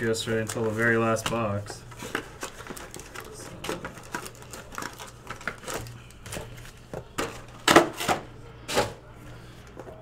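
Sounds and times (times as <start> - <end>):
cardboard box and packs handled: 0.4 - 8.1.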